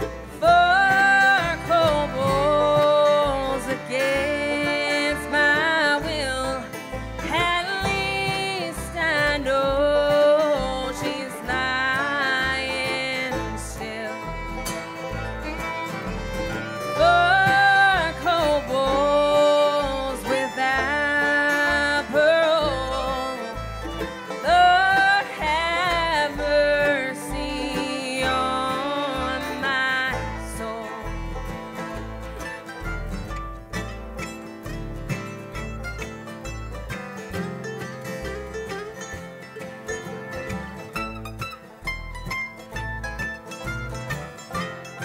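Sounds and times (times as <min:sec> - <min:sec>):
banjo: 0:00.0 - 0:45.0
fiddle lead: 0:00.0 - 0:45.0
mandolin: 0:00.0 - 0:45.0
plucked upright bass: 0:00.0 - 0:45.0
strummed acoustic guitars: 0:00.0 - 0:45.0.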